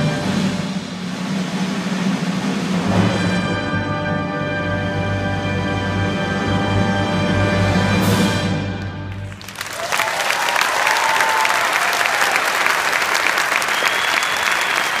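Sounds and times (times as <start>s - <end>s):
audience applause and cheering: 9.0s - 15.0s.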